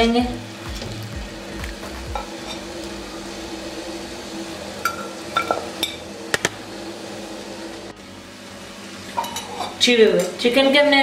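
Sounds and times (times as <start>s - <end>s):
steady low hum: 0.0s - 9.1s.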